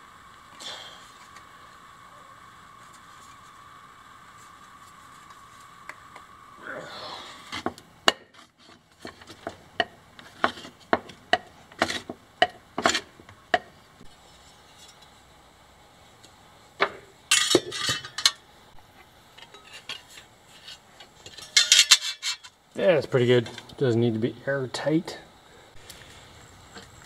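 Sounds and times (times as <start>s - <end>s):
metal clatter: 21.2s - 22.5s.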